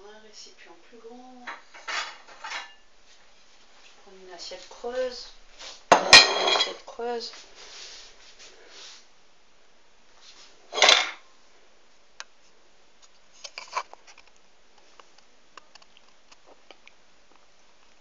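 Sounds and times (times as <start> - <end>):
crockery and spoon clinking: 5.9 - 6.8.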